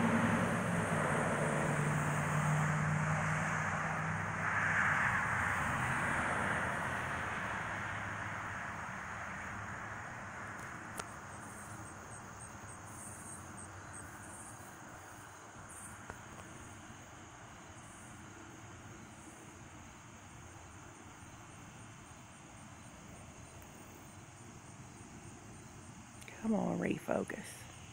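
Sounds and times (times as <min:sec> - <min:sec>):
jet aircraft passing overhead: 0:00.0 - 0:26.1
faint high insect chirping: 0:06.6 - 0:27.9.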